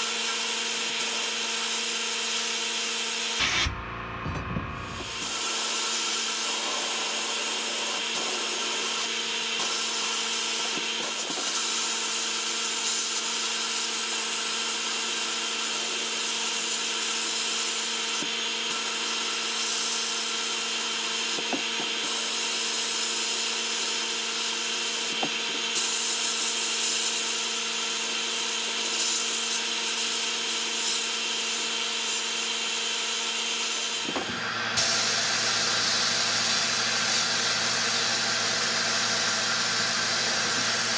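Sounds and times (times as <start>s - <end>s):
sandblasting nozzle hissing: 0.5s - 3.8s, 4.8s - 40.9s
steady hum: 3.4s - 5.3s.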